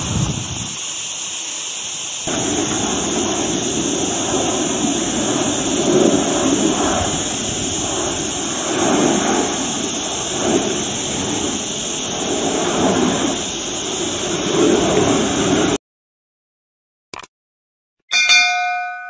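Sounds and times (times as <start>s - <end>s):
jet plane flying past low: 2.3s - 15.8s.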